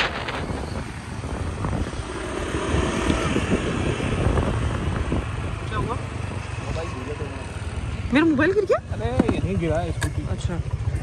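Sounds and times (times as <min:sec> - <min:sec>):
wind on microphone: 0:00.0 - 0:06.8
scooter engine rumbling: 0:00.0 - 0:11.0.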